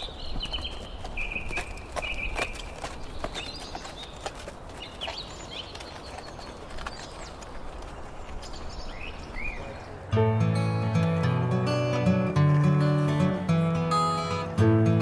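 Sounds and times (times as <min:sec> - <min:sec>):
bird chirps: 0:00.0 - 0:04.2, 0:08.3 - 0:10.0
faint hoof clops: 0:00.0 - 0:09.7
strummed acoustic guitar music: 0:10.1 - 0:15.0.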